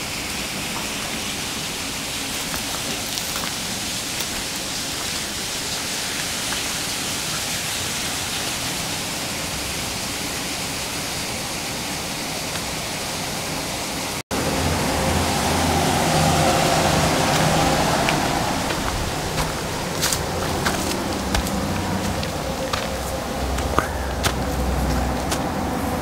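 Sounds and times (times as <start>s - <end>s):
river water rushing: 0.0s - 26.0s
low hum: 14.3s - 26.0s.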